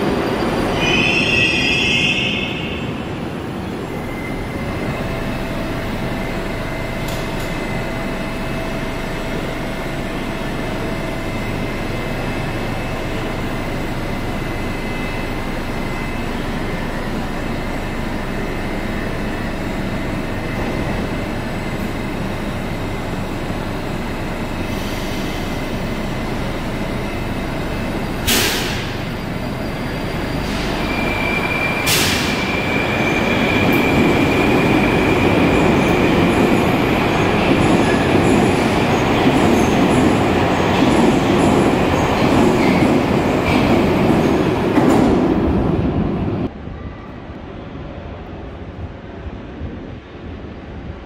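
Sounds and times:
metro train running on rails: 0.0s - 51.0s
high-pitched wheel squeal: 28.6s - 36.0s.

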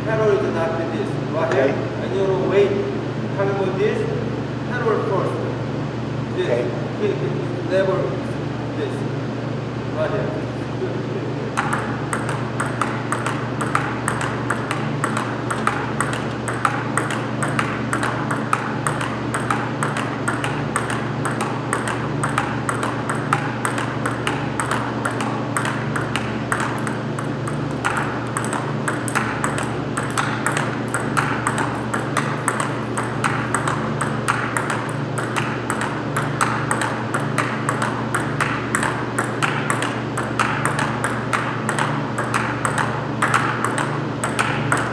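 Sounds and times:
table tennis ball hits: 11.5s - 44.9s.

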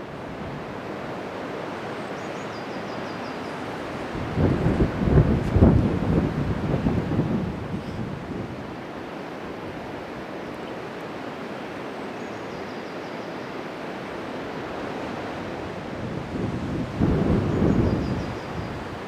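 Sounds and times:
wind buffeting microphone: 3.9s - 8.8s, 14.6s - 19.0s.

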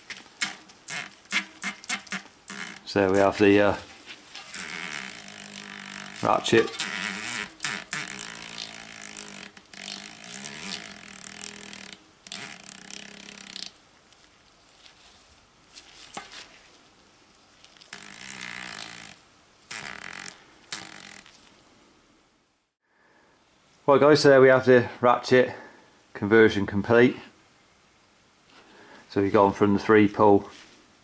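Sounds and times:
bicycle freehub ratchet clicking: 4.6s - 13.7s.

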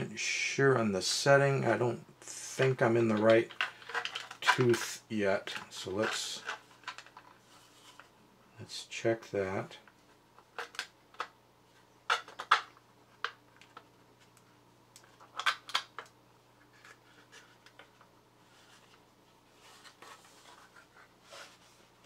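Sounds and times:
faint steady hum: 0.0s - 22.0s
plastic rubbing and scraping: 2.6s - 8.1s, 16.6s - 22.0s.

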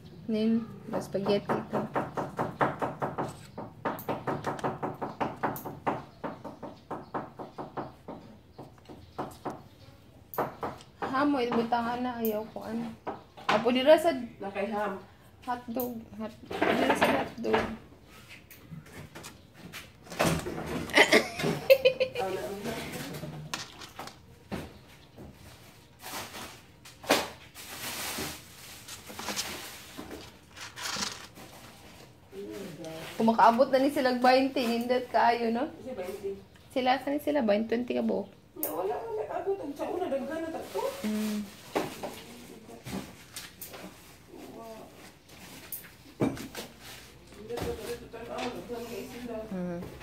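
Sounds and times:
kitten claws scratching plastic: 23.5s - 24.2s, 27.7s - 32.2s.

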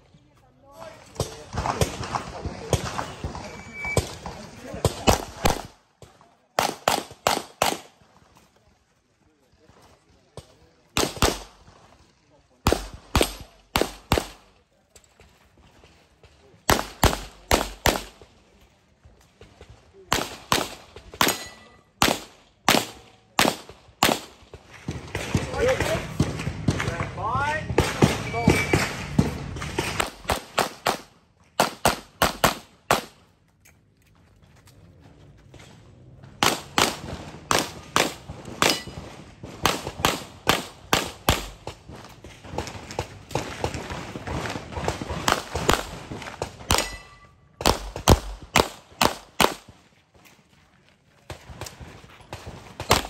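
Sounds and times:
pistol shots: 1.1s - 8.0s, 10.9s - 11.7s, 12.6s - 14.5s, 16.7s - 18.3s, 20.1s - 27.1s, 27.7s - 33.2s, 36.4s - 49.8s, 51.3s - 53.0s.

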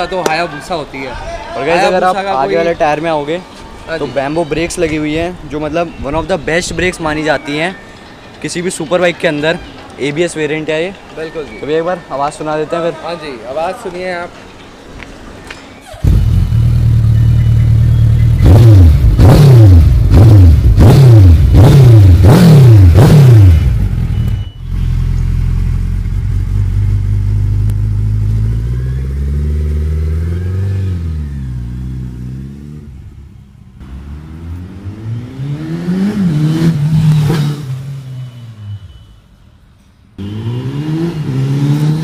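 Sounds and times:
motorcycle engine revving: 16.0s - 38.7s, 40.2s - 42.0s.

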